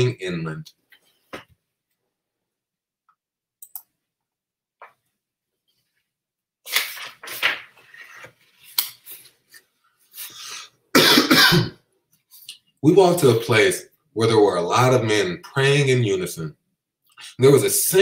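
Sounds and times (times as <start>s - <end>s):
book pages rustling: 6.7s - 10.4s.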